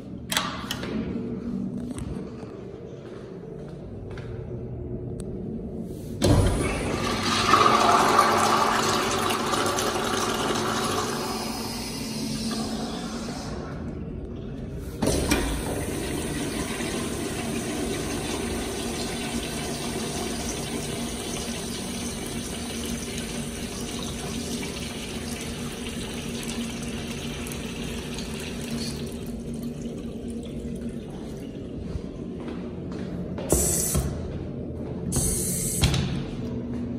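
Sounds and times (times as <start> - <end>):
urinal flushing: 6.2 - 32.6.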